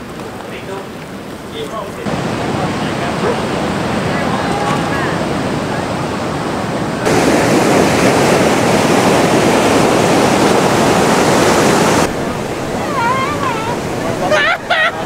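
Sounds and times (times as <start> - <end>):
ocean surf breaking: 0.0 - 15.0
people's voices: 0.2 - 7.1, 12.0 - 15.0.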